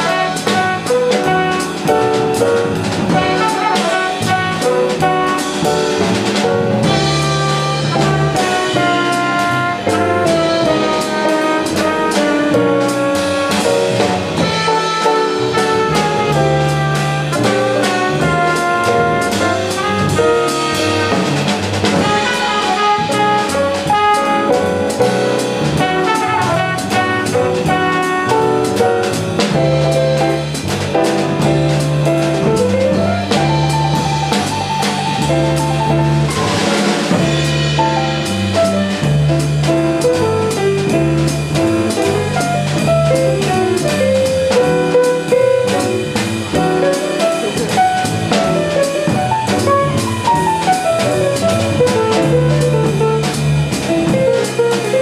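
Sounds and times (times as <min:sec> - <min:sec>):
trumpet: 0:00.0 - 0:02.3, 0:03.1 - 0:06.2, 0:06.8 - 0:30.3, 0:32.4 - 0:38.9
drums and cymbals: 0:00.0 - 0:55.0
piano: 0:00.0 - 0:55.0
walking double bass: 0:00.0 - 0:55.0.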